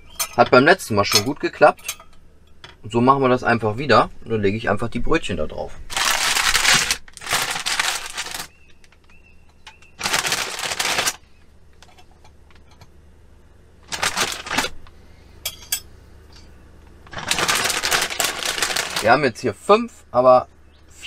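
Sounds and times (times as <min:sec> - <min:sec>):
plastic bag crinkling: 0:05.9 - 0:09.2, 0:09.9 - 0:11.3, 0:13.8 - 0:14.9, 0:17.0 - 0:19.3.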